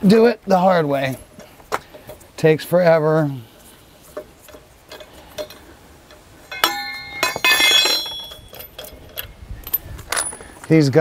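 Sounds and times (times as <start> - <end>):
metallic clank of lug wrench: 4.9 - 10.4.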